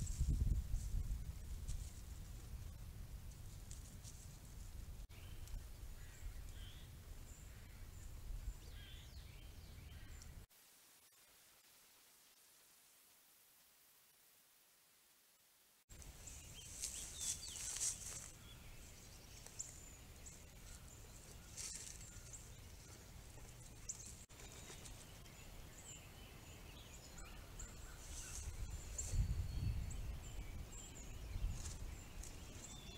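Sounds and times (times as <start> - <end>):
small songbirds chirping: 5.0 - 10.5, 15.9 - 32.9.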